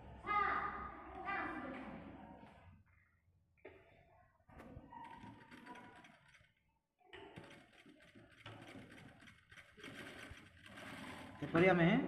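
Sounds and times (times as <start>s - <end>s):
sewing machine stitching: 5.0s - 6.5s, 7.2s - 11.7s.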